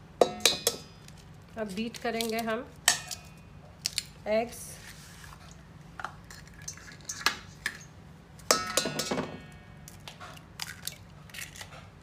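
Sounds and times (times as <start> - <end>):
eggs knocking on metal bowl: 0.2 - 0.9, 8.5 - 9.5
metal bowl ringing: 0.2 - 0.9, 8.5 - 9.8.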